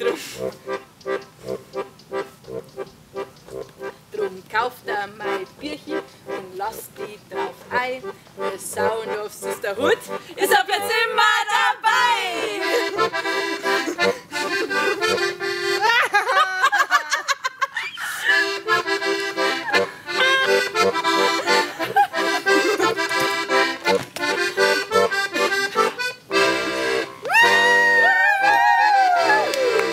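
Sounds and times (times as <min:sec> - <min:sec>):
button accordion playing folk tune: 0:00.0 - 0:16.1, 0:18.0 - 0:27.8, 0:29.2 - 0:29.9
sliding vocal whoops: 0:27.3 - 0:29.8.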